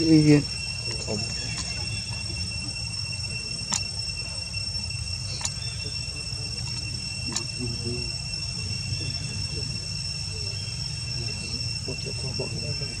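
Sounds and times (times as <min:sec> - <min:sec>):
insects droning: 0:00.0 - 0:13.0
sharp clicks: 0:03.7 - 0:03.9, 0:05.3 - 0:05.6, 0:06.6 - 0:07.5.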